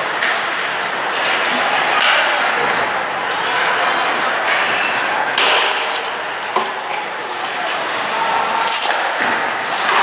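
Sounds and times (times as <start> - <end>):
hockey sticks knocking: 5.3 - 8.0
skates scraping ice: 7.2 - 10.0.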